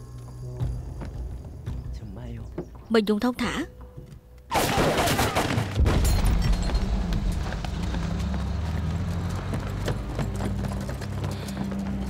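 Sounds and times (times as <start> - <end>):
heavy low rumble: 5.9 - 12.0
horse hooves clattering on street: 6.1 - 12.0.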